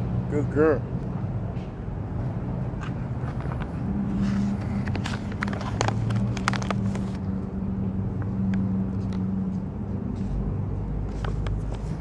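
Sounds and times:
plastic pouch crinkling: 0:05.0 - 0:07.2.

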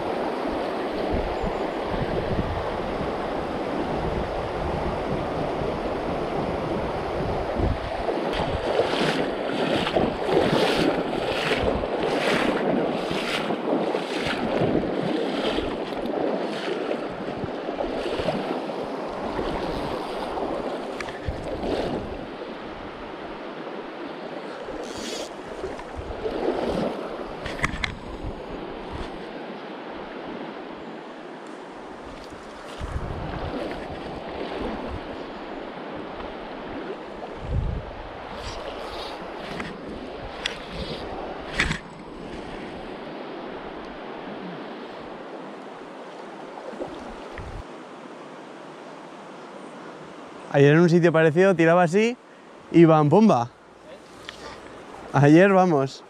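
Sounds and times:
wind on microphone: 0:00.0 - 0:23.4, 0:24.4 - 0:30.9, 0:31.9 - 0:45.5, 0:46.6 - 0:47.7
river water flowing: 0:00.0 - 0:56.0.

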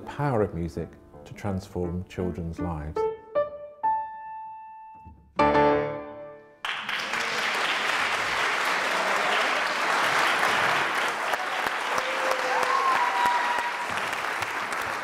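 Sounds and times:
loud piano chord: 0:00.0 - 0:06.6
piano note ringing: 0:00.0 - 0:06.6
audience applause: 0:06.6 - 0:15.0.

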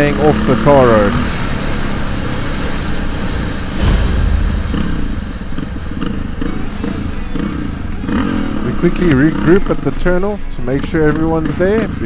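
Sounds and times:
quad bike engine revving: 0:00.0 - 0:03.9, 0:04.6 - 0:12.0
low thump: 0:03.7 - 0:06.4.

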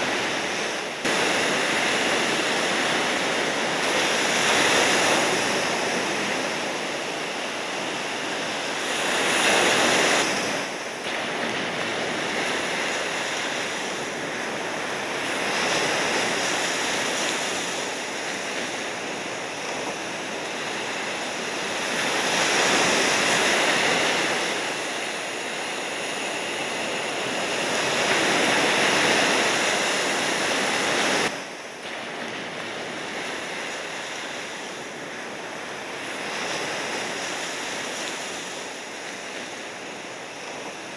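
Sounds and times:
waves breaking: 0:00.0 - 0:40.9.

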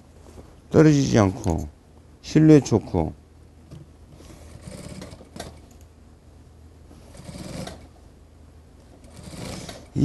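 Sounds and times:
faint motor hum: 0:00.0 - 0:10.0
sewing machine stitching: 0:04.5 - 0:05.6, 0:07.1 - 0:07.9, 0:09.0 - 0:09.9.

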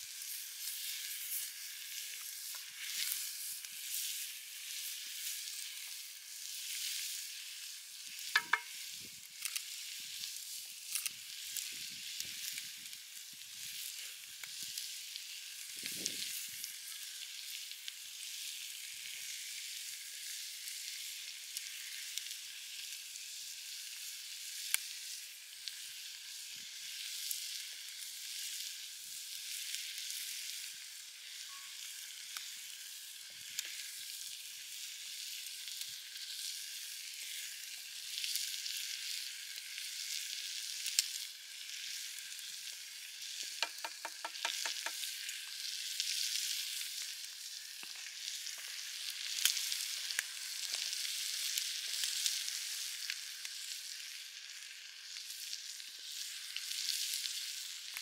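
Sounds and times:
food sizzling in skillets: 0:00.0 - 0:58.0
wooden spoon stirring in pan: 0:08.2 - 0:08.9, 0:43.5 - 0:46.8.

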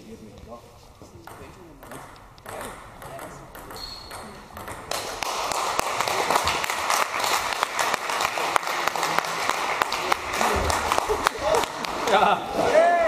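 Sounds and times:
spectators applauding: 0:04.9 - 0:12.4.

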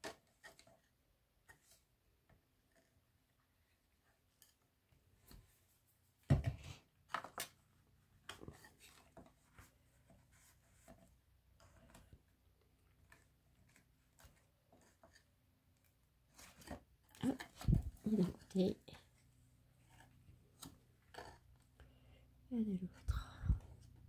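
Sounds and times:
paper rustling and crinkling: 0:06.7 - 0:12.2.

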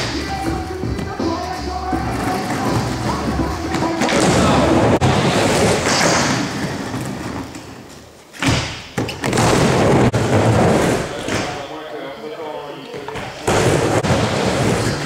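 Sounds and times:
skateboard wheels rolling on wood: 0:00.0 - 0:08.1.

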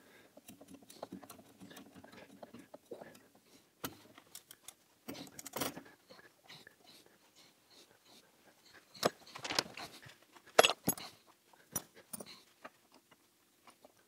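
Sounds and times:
hand tool clicks and metal taps: 0:00.4 - 0:03.2, 0:10.6 - 0:11.1.

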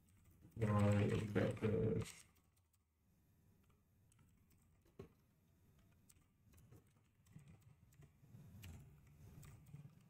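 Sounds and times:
typing on computer keyboard: 0:03.6 - 0:10.0.

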